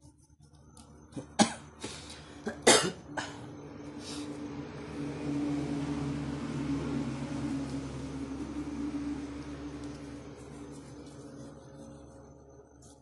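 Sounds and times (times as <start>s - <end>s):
steady mechanical hum: 0.0s - 13.0s
person coughing: 1.3s - 1.6s, 2.4s - 3.4s.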